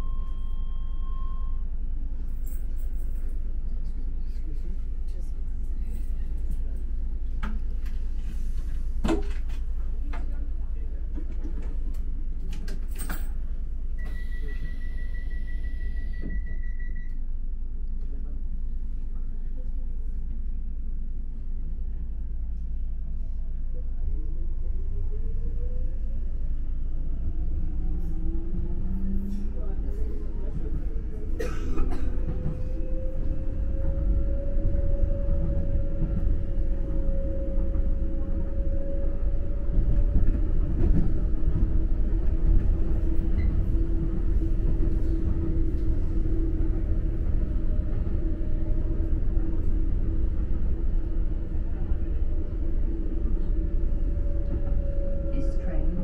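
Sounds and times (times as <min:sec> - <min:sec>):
train low hum: 0:00.0 - 0:56.0
wheels rumbling on track: 0:18.1 - 0:56.0.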